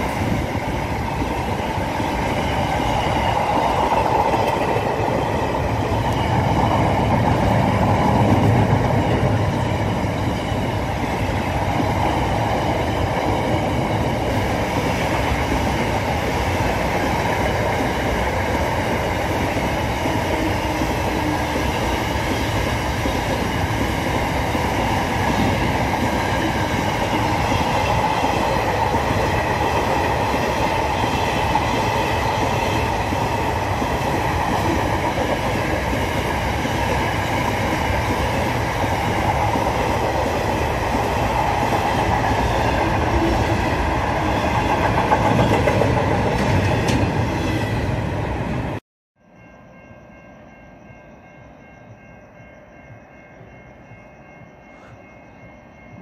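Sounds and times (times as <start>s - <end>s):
train wheels rumbling on rails: 0.0s - 48.8s.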